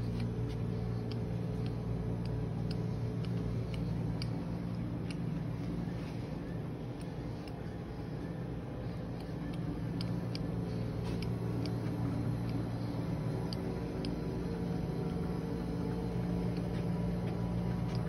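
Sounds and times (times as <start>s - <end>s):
faint ticks: 0.0s - 6.2s
low mechanical hum: 0.0s - 18.0s.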